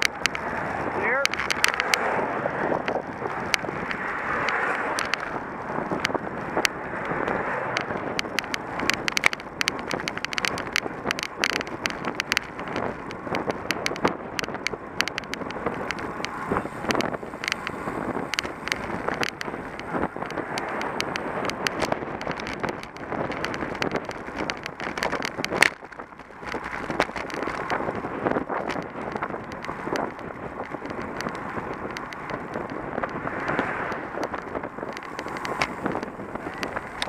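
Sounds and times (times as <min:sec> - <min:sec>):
bicycle tyre road noise: 0:00.0 - 0:37.0
clicks and knocks over asphalt: 0:00.0 - 0:37.0
wind rushing over microphone: 0:00.0 - 0:37.0.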